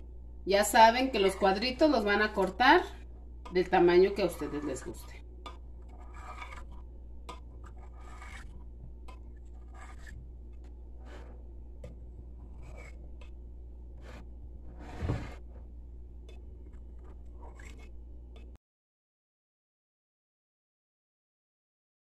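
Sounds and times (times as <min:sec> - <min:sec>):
knife scraping glass dish: 0:04.0 - 0:10.2, 0:12.4 - 0:13.3, 0:17.4 - 0:18.5.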